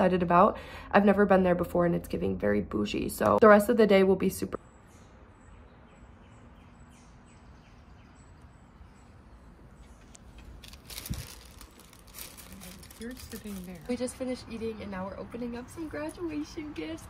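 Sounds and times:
paper wrapper crinkling: 0:10.1 - 0:14.2.

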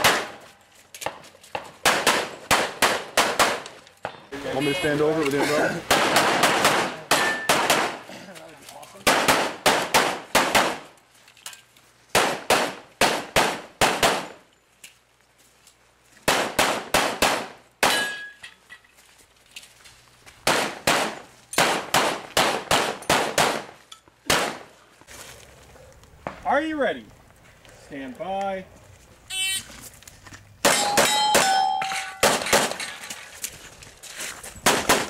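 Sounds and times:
pistol gunfire: 0:00.0 - 0:00.4, 0:01.8 - 0:03.7, 0:05.9 - 0:08.0, 0:09.0 - 0:10.8, 0:12.2 - 0:14.4, 0:16.3 - 0:18.1, 0:20.4 - 0:23.7, 0:24.3 - 0:24.7, 0:32.2 - 0:32.8, 0:34.6 - 0:35.0
steel target ringing: 0:30.7 - 0:32.5.

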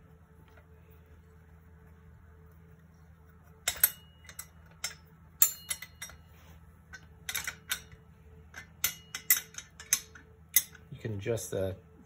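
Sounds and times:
wrench clicking on metal: 0:06.9 - 0:10.9.

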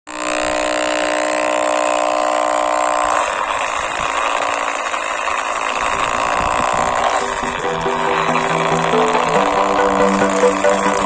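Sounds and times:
small electric motor whining: 0:00.1 - 0:11.0.

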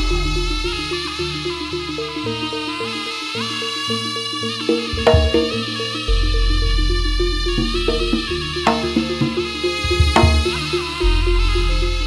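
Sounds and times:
sliding melody line: 0:04.4 - 0:12.0
percussion ensemble music: 0:04.6 - 0:12.0
low drum tones: 0:04.7 - 0:12.0.

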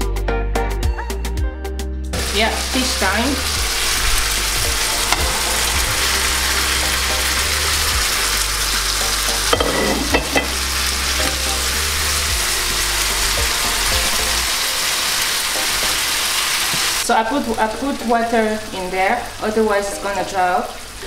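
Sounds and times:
fish sizzling in oil: 0:02.2 - 0:21.0
sharp knocks in pan: 0:09.5 - 0:10.6.

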